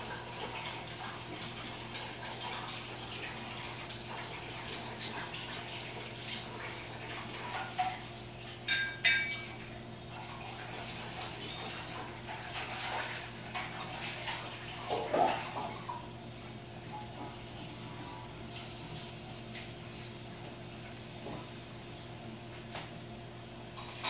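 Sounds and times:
dishes and utensils clattering: 8.6s - 9.6s, 11.3s - 12.0s, 23.7s - 24.0s.

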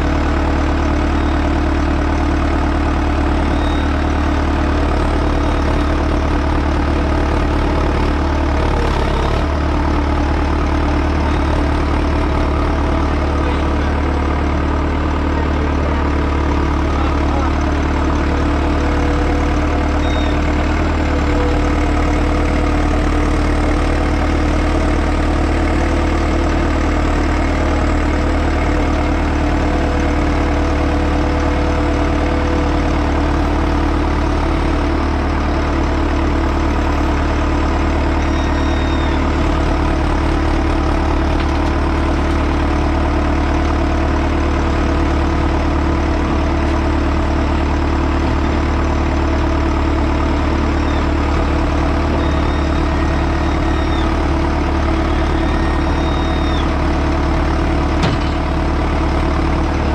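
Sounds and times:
heavy diesel engine running: 0.0s - 59.9s
faint high squeals: 52.1s - 54.2s, 54.9s - 56.8s.

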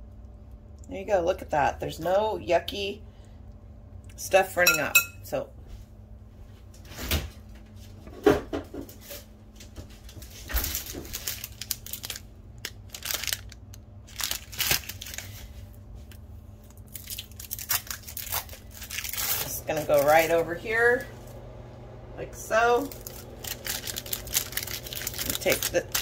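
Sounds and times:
plastic packaging crinkling: 10.4s - 20.3s, 22.8s - 26.0s.

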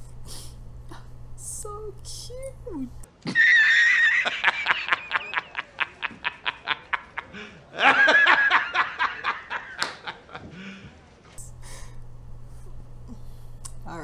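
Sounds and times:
man laughing high-pitched: 3.3s - 10.5s.

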